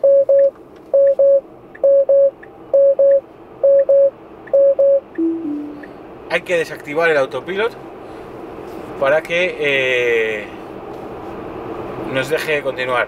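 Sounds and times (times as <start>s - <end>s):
car alert chime beeping: 0.0s - 5.9s
low two-note falling tone: 5.2s - 5.9s.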